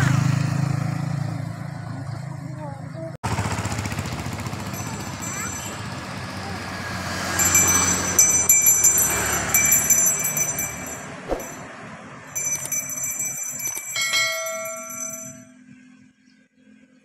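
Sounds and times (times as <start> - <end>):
level crossing warning bell: 4.4 - 15.8
low chime: 7.3 - 15.8.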